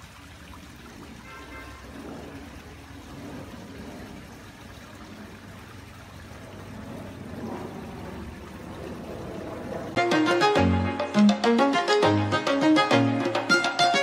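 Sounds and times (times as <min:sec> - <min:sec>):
waterfall splashing into pond: 0:00.0 - 0:10.8.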